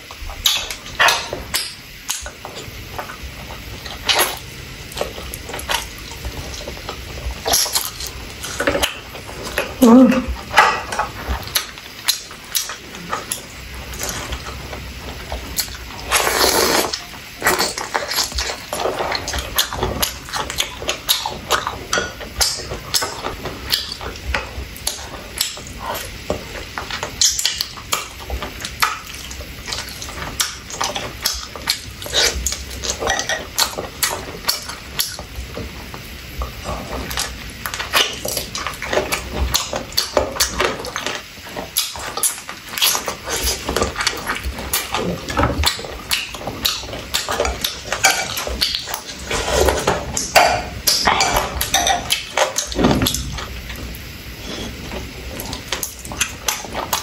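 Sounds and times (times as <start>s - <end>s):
wet chewing and mouth smacks: 0.0s - 57.0s.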